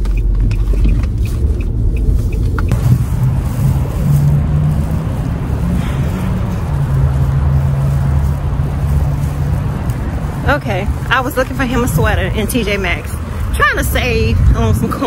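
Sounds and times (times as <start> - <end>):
car interior rumble: 0.0 - 15.0
outdoor traffic rumble: 0.0 - 15.0.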